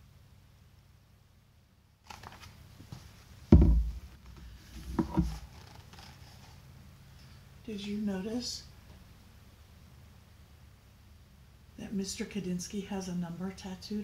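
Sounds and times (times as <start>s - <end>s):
paper rustling: 2.0s - 3.3s, 4.7s - 6.6s
small bumps: 2.1s - 6.4s
book thumping: 3.5s - 4.1s, 4.8s - 5.4s.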